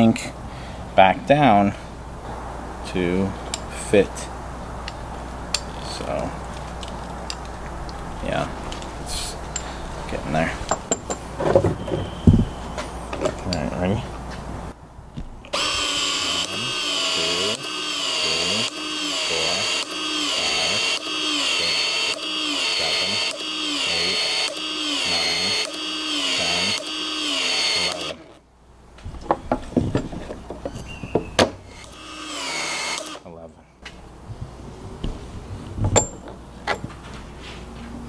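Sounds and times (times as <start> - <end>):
expansion tool motor whining: 15.5 - 28.4, 31.6 - 33.2.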